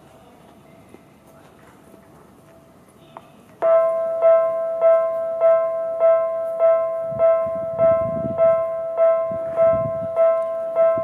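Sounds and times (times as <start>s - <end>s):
level crossing electronic bell ringing: 3.6s - 11.0s.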